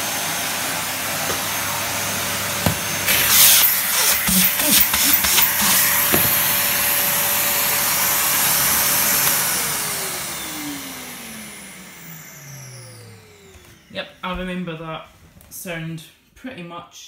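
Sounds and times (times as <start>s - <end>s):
vacuum motor spinning down: 0.0s - 14.2s
vacuum cleaner running: 0.0s - 15.0s.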